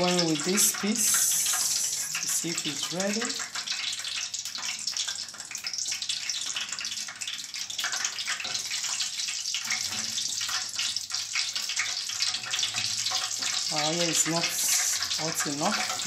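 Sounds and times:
oil fizzing and crackling: 0.0 - 16.0.

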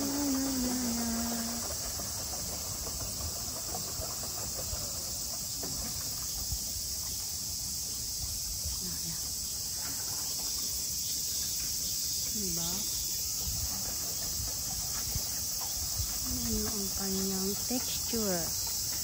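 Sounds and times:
cicadas singing: 0.0 - 19.0.

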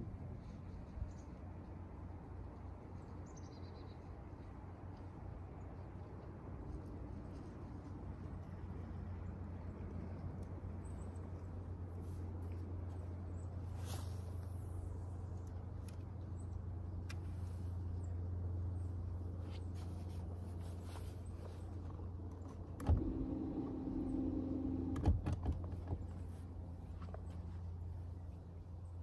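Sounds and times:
low motor hum: 0.0 - 29.0
whirring whine: 22.6 - 27.3.

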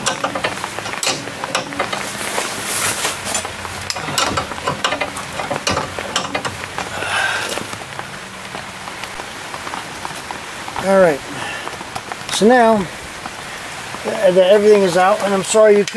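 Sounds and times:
wrench metallic clicks and scrapes: 0.0 - 6.9
steady hiss: 0.0 - 15.9.

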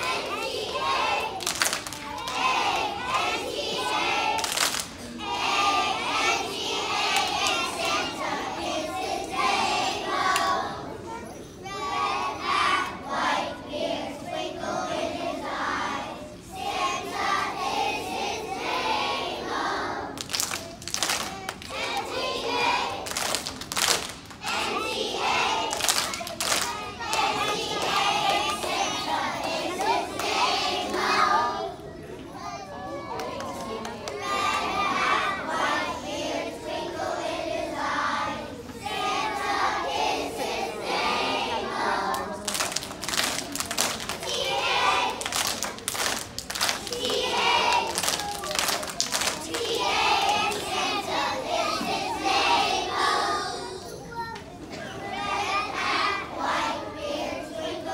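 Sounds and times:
children singing together: 0.0 - 20.2, 21.4 - 23.2, 24.4 - 42.5, 44.0 - 45.8, 46.7 - 48.4, 49.2 - 57.9
hand claps: 1.4 - 2.4, 4.4 - 5.0, 20.2 - 22.0, 23.1 - 24.6, 25.7 - 28.8, 42.1 - 50.7.

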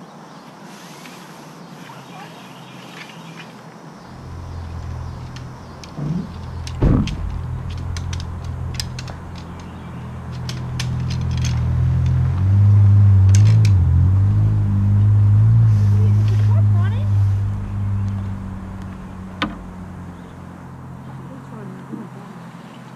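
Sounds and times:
metal frame poles clicking: 4.1 - 12.5, 13.2 - 14.0
steady low hum: 4.1 - 21.2.

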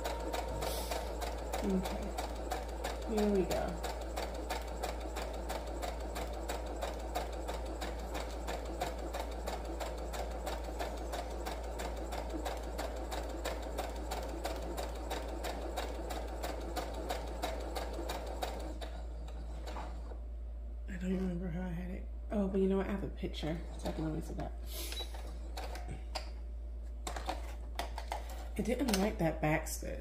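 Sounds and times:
sewing machine stitching: 0.0 - 20.2, 23.4 - 26.0.

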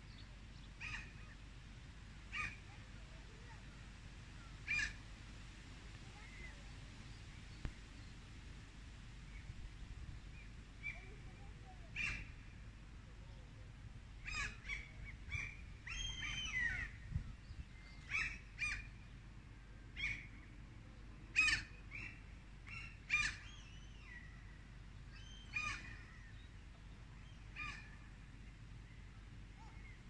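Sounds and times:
faint low rumble: 0.0 - 30.0
birds calling: 14.2 - 17.1, 21.4 - 26.6.

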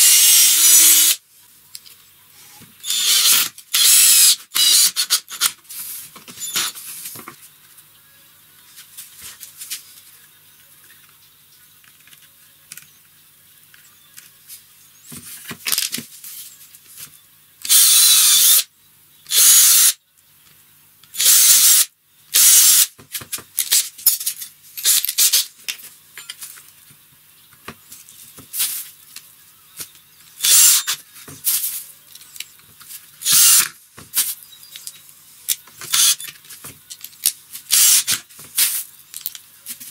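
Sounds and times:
cordless drill driving screws: 0.0 - 1.2, 2.8 - 5.5, 17.7 - 18.6, 19.3 - 19.9, 21.2 - 21.8, 22.4 - 22.9, 30.4 - 31.0, 33.2 - 33.7, 35.9 - 36.2, 37.7 - 38.2.

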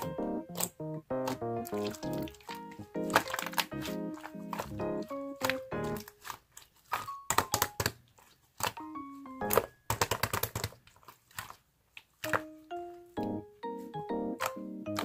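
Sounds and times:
light background music: 0.0 - 6.3, 8.7 - 9.9, 12.2 - 15.0
slime clicking and popping: 0.0 - 12.5, 14.4 - 15.0.

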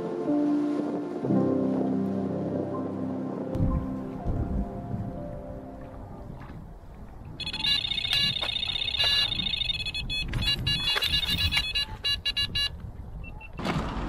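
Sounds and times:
bite alarm beeping: 7.4 - 13.6.

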